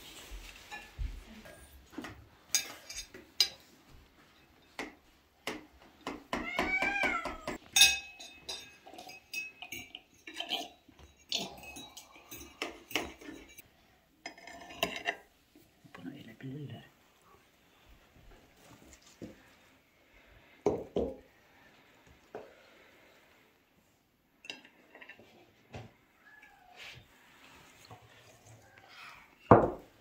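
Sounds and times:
dishes and cutlery clinking: 0:00.2 - 0:13.6, 0:14.2 - 0:15.3, 0:24.4 - 0:25.5
cat meowing: 0:06.4 - 0:07.6, 0:26.2 - 0:27.0.

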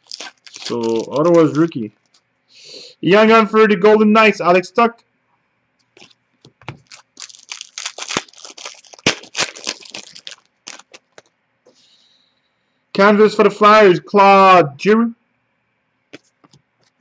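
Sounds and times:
trading cards rustling: 0:00.0 - 0:02.2, 0:06.0 - 0:11.3.

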